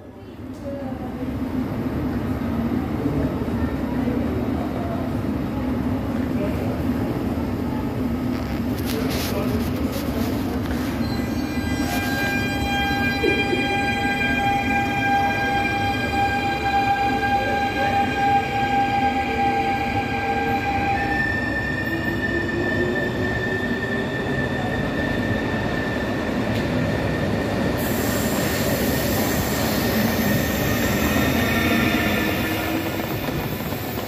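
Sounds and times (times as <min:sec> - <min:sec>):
electric train whining: 0:10.9 - 0:34.0.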